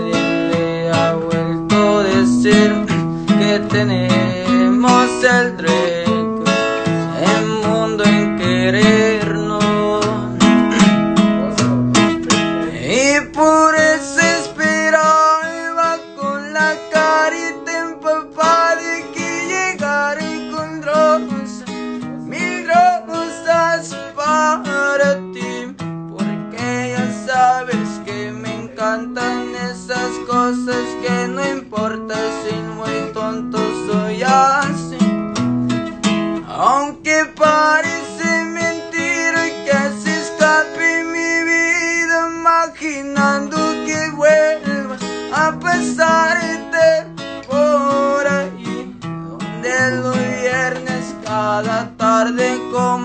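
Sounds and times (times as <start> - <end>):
man singing: 0.0 - 35.5, 36.4 - 53.0
acoustic guitar strumming: 0.0 - 53.0.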